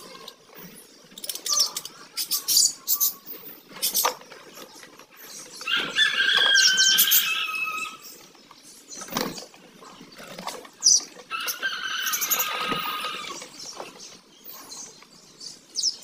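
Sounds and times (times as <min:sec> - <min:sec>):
budgerigars chattering: 0:00.0 - 0:05.6.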